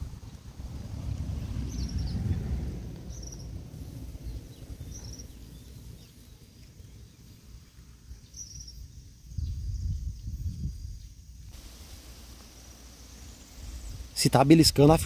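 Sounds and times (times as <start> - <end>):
wind rumbling on microphone: 0.0 - 15.0
bird chirping: 1.6 - 2.4, 3.0 - 11.2.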